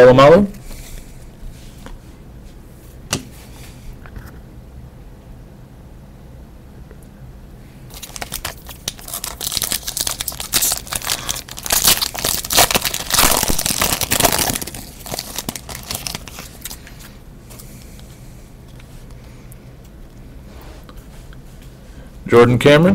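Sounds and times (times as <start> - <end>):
foil wrapper tearing and crinkling: 7.9 - 17.1.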